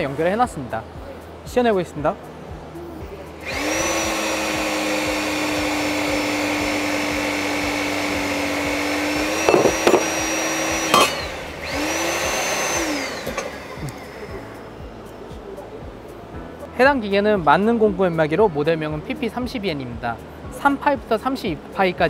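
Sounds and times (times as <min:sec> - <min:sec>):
hydraulic pump motor whining: 0:03.4 - 0:14.6
steel cracking as blade shears: 0:10.9 - 0:11.3.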